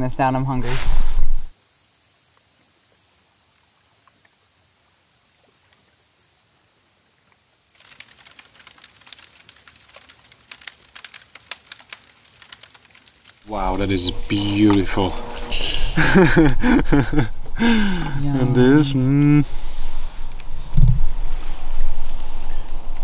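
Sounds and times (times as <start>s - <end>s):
fire crackling and popping: 7.3s - 23.0s
high-pitched chirring: 13.5s - 22.9s.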